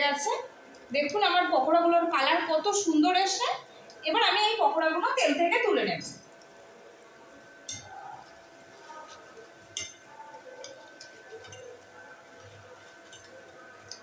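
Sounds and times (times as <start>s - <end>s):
oil frying: 0.0s - 14.0s
metal skimmer clinking on pan: 7.6s - 8.0s, 9.7s - 11.8s.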